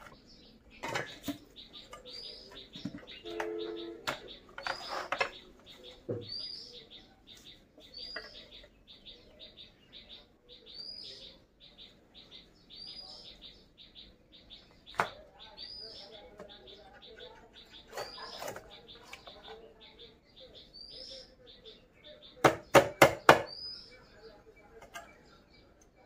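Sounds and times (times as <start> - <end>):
songbird singing: 0.0 - 26.0
sharp knocks: 22.4 - 23.6.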